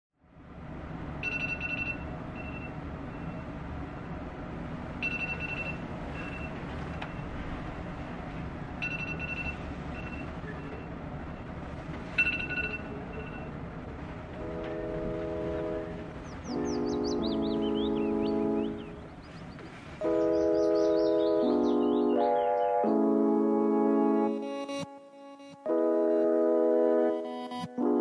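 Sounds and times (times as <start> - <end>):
phone alarm chime: 1.2 - 2.7, 5.0 - 6.5, 8.8 - 10.3.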